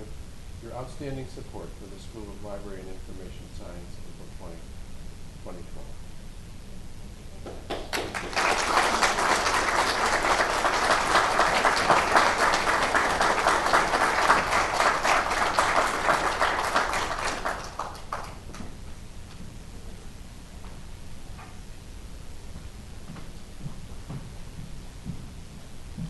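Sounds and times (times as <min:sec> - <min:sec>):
audience applauding: 0:07.5 - 0:18.7.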